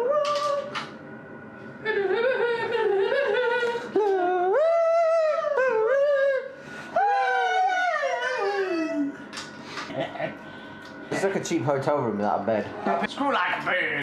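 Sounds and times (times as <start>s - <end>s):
person singing in howl-like voice: 0.0s - 0.9s, 1.8s - 9.2s.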